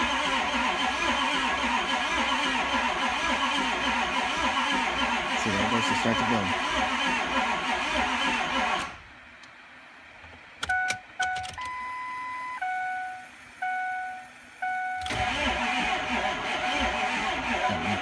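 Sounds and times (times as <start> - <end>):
diesel engine cranking: 0.0 - 9.0, 15.0 - 18.0
electronic beeps: 10.7 - 15.1.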